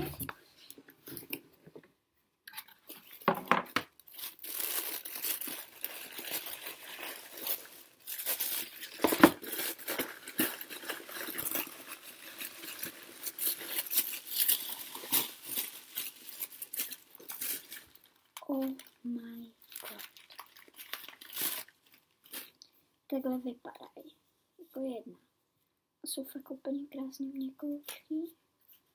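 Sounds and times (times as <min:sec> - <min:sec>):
tissue paper crinkling: 0:04.0 - 0:19.0, 0:19.6 - 0:22.6.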